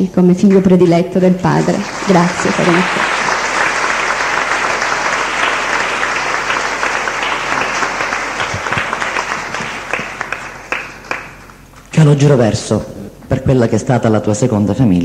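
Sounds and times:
crowd applauding: 1.4s - 11.8s.

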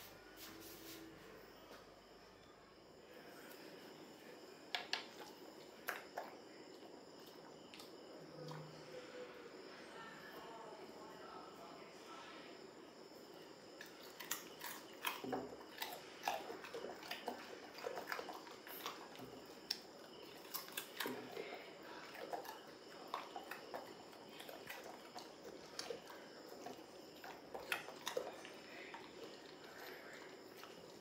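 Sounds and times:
dog chewing and crunching food: 4.8s - 8.8s, 13.7s - 31.0s.

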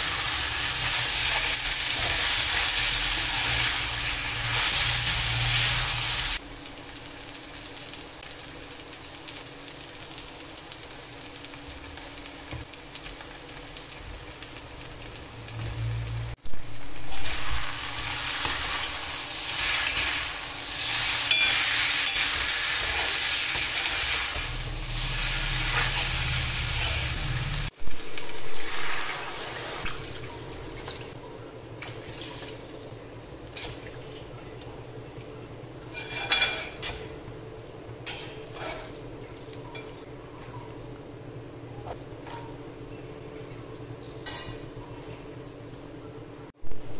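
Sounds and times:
food sizzling in a pan: 0.0s - 30.6s, 35.8s - 37.2s, 38.0s - 39.0s
metal spoon scraping a pan: 35.9s - 37.0s, 38.1s - 38.9s.

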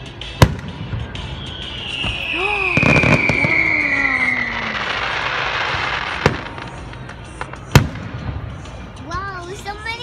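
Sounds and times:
firework whistle: 0.4s - 6.7s.

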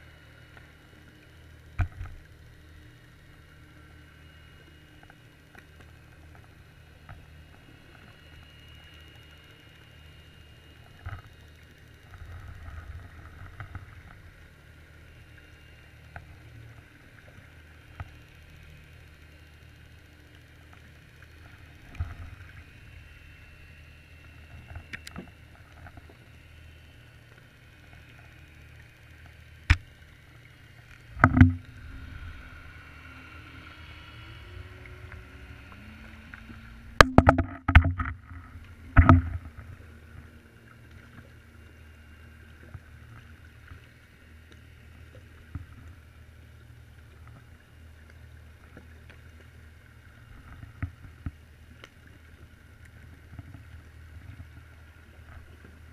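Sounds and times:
faint hum shifting in pitch: 0.0s - 55.9s
low underwater rumble: 19.6s - 55.9s.

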